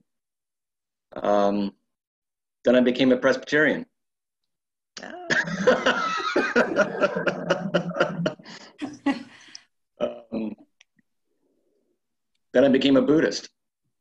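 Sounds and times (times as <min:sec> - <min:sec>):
person laughing: 0:05.2 - 0:09.6.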